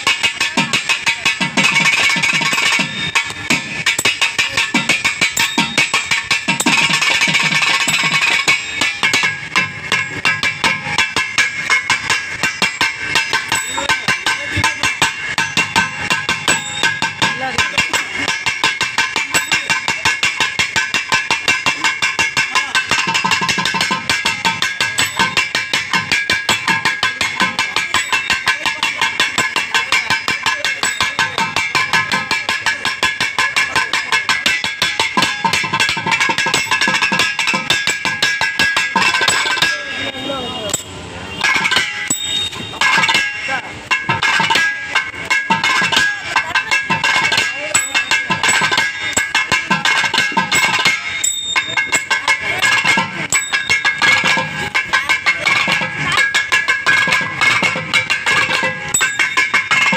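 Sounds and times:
hand drum strokes: 0.0s - 59.9s.

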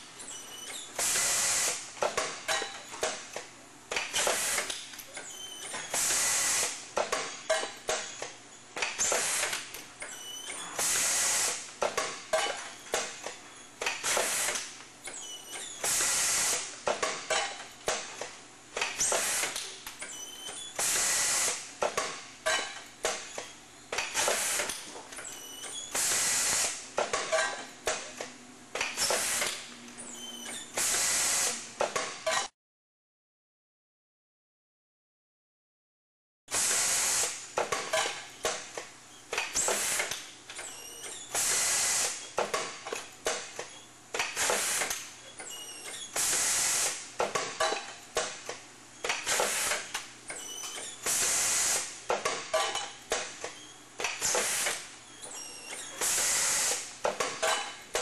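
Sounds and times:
mechanical clicks and clacks: 36.5s - 58.0s.

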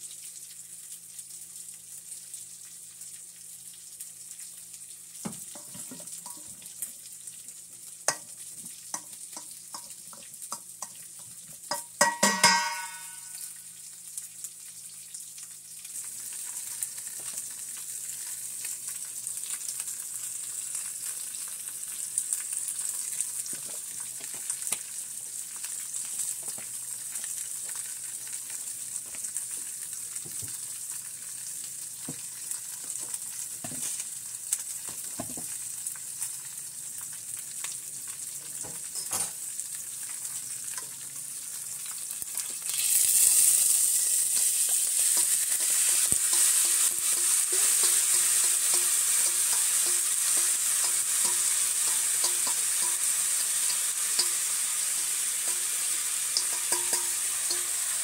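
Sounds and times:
oil sizzling and popping: 0.0s - 58.0s
vegetables sizzling in oil: 0.0s - 58.0s
spoon scraping a pan: 44.3s - 58.0s.

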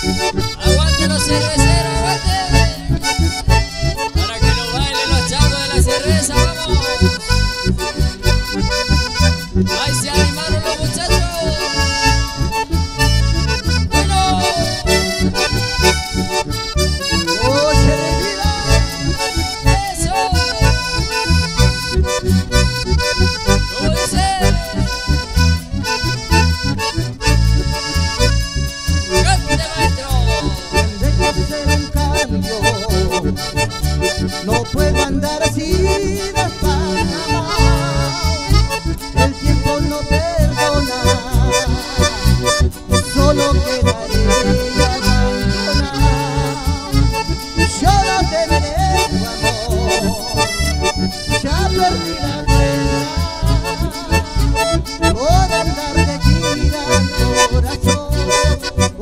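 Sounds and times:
accordion: 0.0s - 59.0s
acoustic guitar: 0.0s - 59.0s
instrumental band music: 0.0s - 59.0s
steady bass beat: 0.0s - 59.0s.

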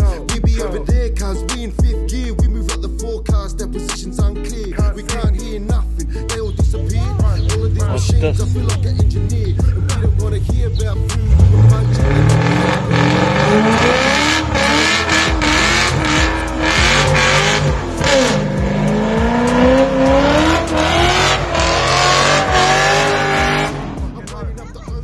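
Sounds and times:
car engine revving hard: 11.0s - 24.4s.

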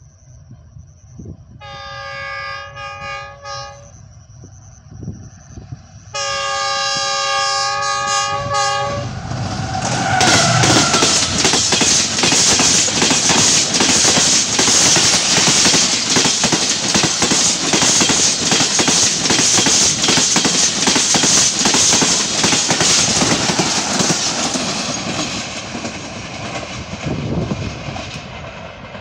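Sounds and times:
train coaches rushing past: 5.6s - 29.0s
wheels clattering over rail joints: 9.8s - 26.9s.

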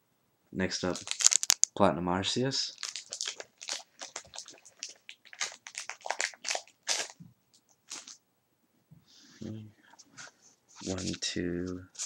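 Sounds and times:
foil wrapper crinkling and tearing: 0.8s - 1.7s, 2.7s - 7.2s, 7.9s - 8.2s.

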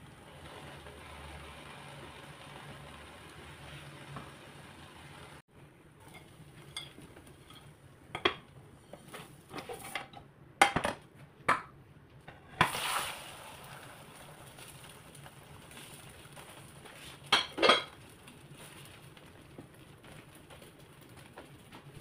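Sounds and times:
spatula scraping frying pan: 6.1s - 10.1s.

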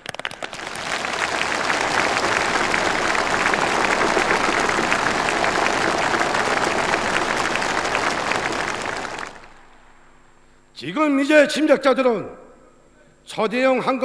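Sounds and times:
crowd applauding: 0.0s - 9.8s.

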